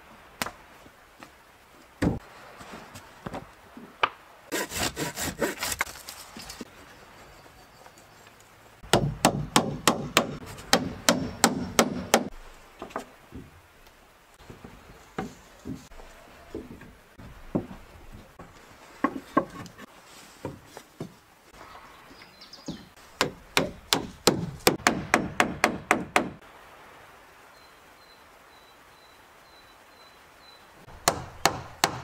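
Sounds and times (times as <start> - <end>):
wooden knocks and taps: 12.8 - 13.6, 14.4 - 15.9, 16.5 - 18.3, 19.0 - 21.2.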